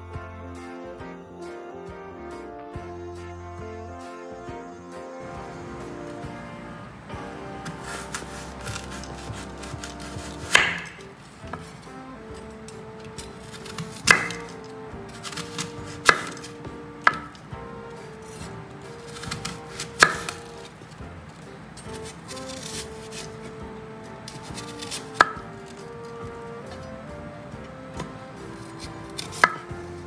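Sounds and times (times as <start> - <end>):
soft background music: 0.0 - 30.0
knife chopping on cutting board: 7.6 - 11.8, 13.0 - 17.4, 18.3 - 20.6, 21.9 - 23.3, 28.0 - 29.8.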